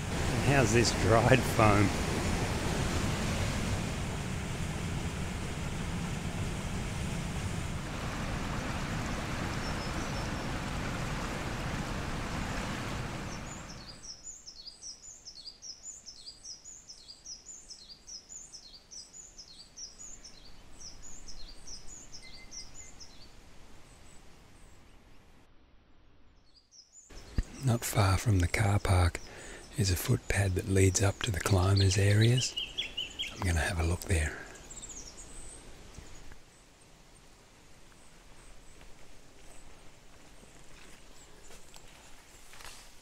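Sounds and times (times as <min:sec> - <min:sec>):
creek water rushing: 0:00.0 - 0:14.1, 0:27.2 - 0:43.0
small bird calling: 0:31.5 - 0:36.4.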